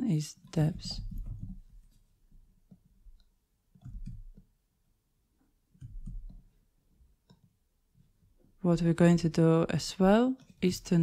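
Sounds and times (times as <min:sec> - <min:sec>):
soft low bumps: 0:00.4 - 0:04.6.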